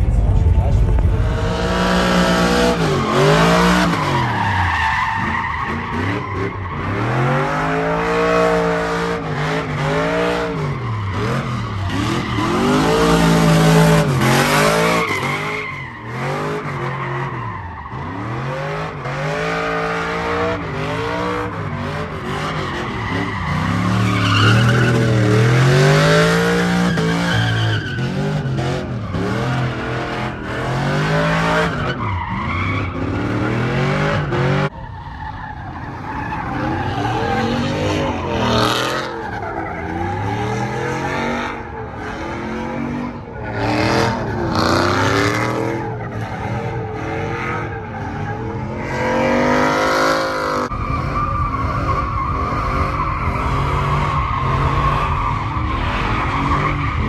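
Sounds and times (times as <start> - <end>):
truck engine revving: 0.0 - 34.8
tyres squealing on pavement: 2.6 - 57.0.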